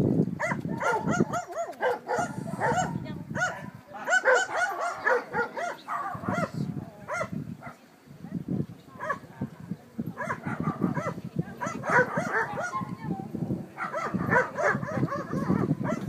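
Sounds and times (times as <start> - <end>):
dog barking: 0.4 - 7.8, 9.0 - 9.2, 10.2 - 12.8, 13.8 - 16.0.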